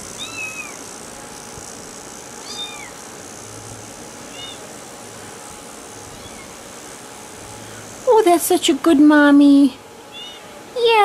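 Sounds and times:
kitten mewing: 0:00.2 - 0:00.8, 0:02.4 - 0:03.0, 0:04.3 - 0:04.6, 0:06.1 - 0:06.6, 0:10.1 - 0:10.5.

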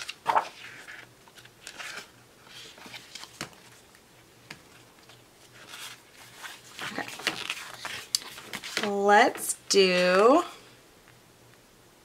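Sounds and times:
paper pages rustling: 0:00.0 - 0:09.1.

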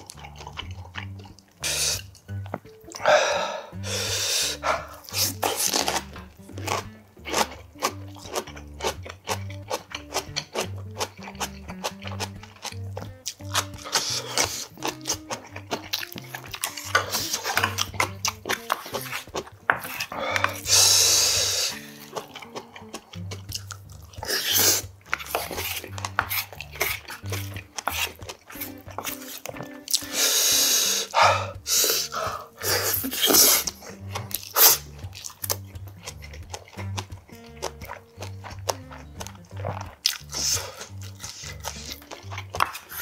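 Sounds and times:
background music with bass notes: 0:00.0 - 0:43.0
close chewing and eating: 0:00.0 - 0:43.0
sharp clicks and smacks: 0:04.5 - 0:30.2, 0:32.9 - 0:43.0
slurping liquid from spoon: 0:13.4 - 0:43.0.

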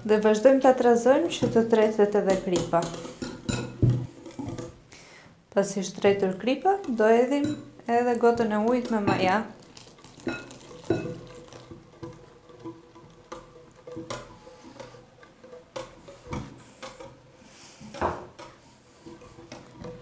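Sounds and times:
whisk clinking glass bowl: 0:06.0 - 0:16.5.

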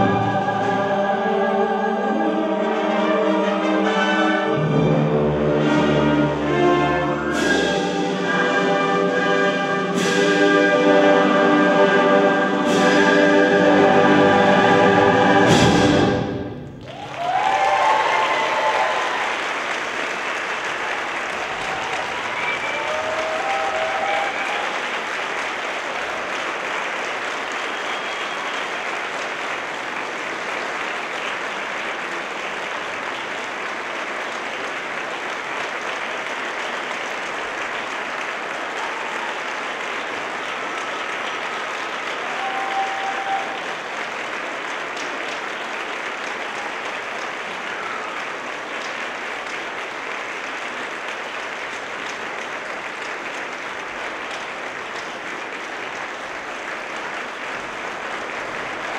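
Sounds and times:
audience calls: 0:00.0 - 0:58.9
audience applauding: 0:16.7 - 0:58.9.

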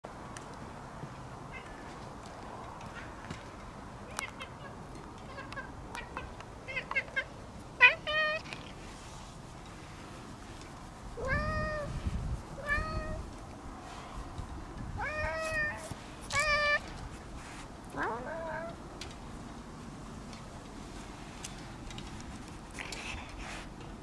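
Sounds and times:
cat meowing: 0:11.2 - 0:11.9, 0:12.6 - 0:13.2, 0:15.0 - 0:16.8.

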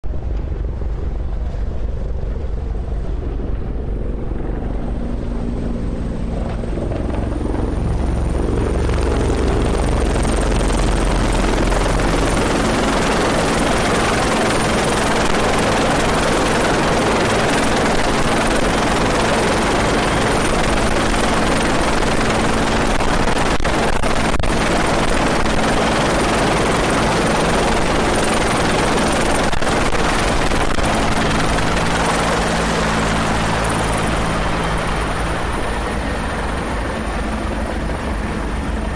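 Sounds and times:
helicopter rotor and turbine noise: 0:00.0 - 0:38.9.

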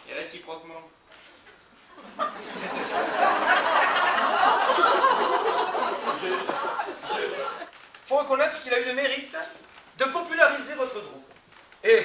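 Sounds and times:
audience laughing: 0:02.0 - 0:07.7.

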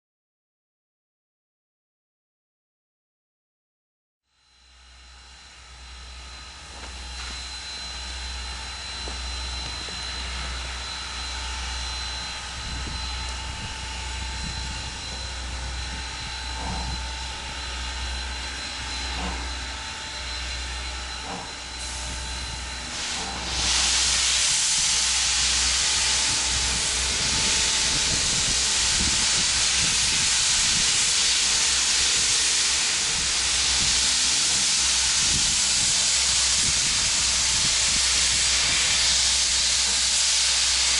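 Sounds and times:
steam locomotive rumbling: 0:06.2 - 0:40.9
loud hiss of steam: 0:08.6 - 0:40.9.

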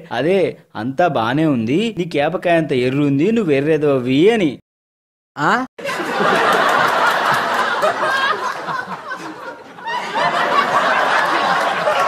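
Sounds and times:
people laughing: 0:05.8 - 0:12.0.

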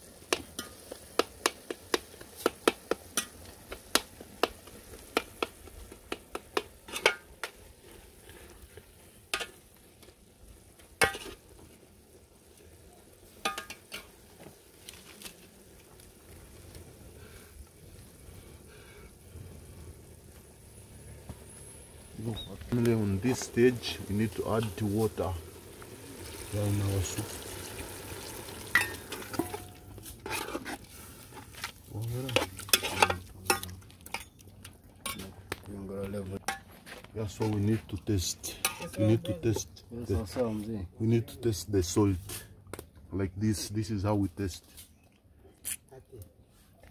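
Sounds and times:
low sizzle: 0:00.0 - 0:46.9
water pouring into a pot: 0:23.0 - 0:30.0
metal spoon scraping a pot: 0:28.8 - 0:31.6, 0:32.2 - 0:34.4.

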